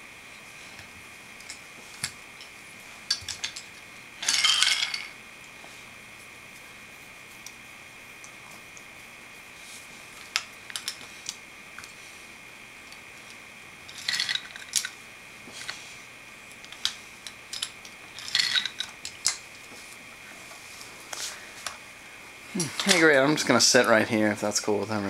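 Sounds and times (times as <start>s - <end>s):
toy trains and wooden track clattering: 1.4s - 5.2s, 10.2s - 12.0s, 12.9s - 15.8s, 16.6s - 19.7s, 22.6s - 24.0s.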